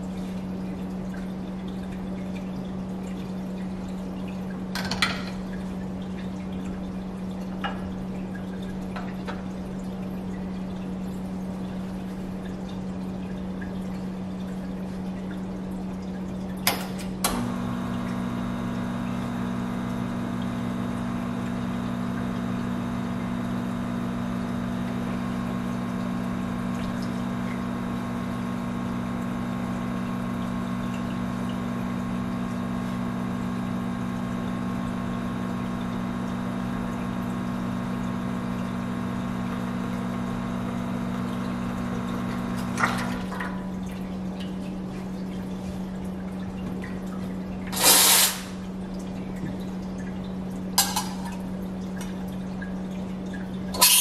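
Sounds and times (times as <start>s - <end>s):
espresso machine pump running: 17.0s - 43.9s, 47.7s - 48.8s, 53.7s - 54.0s.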